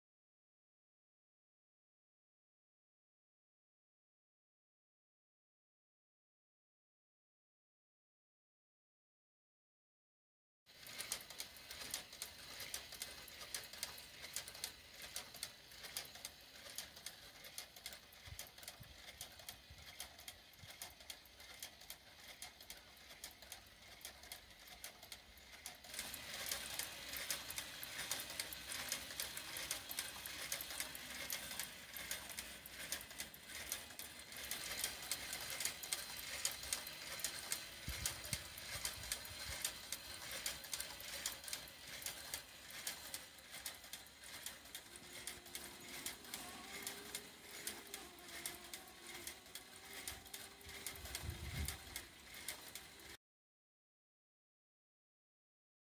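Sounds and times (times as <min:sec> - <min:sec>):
model engine clattering: 0:10.8 - 0:53.2.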